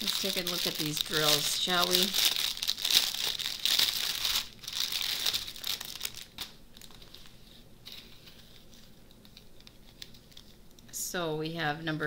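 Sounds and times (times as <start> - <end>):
plastic wrapping crinkling: 0.0 - 10.9.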